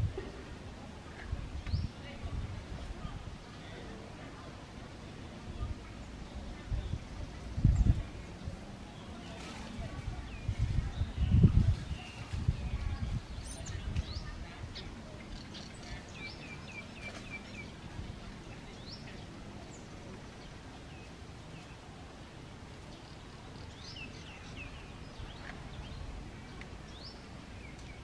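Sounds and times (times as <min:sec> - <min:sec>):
birds chirping: 0:06.0 - 0:21.9, 0:22.8 - 0:28.0.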